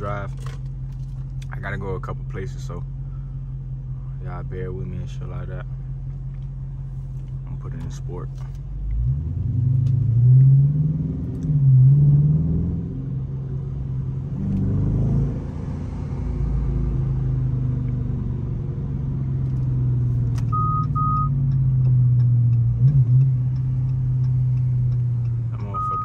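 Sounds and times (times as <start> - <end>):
car engine accelerating: 5.1 - 26.0
short electronic beeps: 20.5 - 21.4, 25.7 - 26.0
regular ticks: 20.8 - 26.0.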